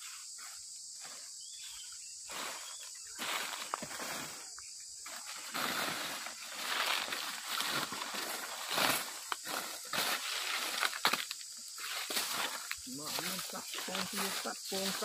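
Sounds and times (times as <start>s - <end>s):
footsteps crunching dry leaves: 0.0s - 15.0s
twigs rustling and snapping: 6.7s - 14.2s.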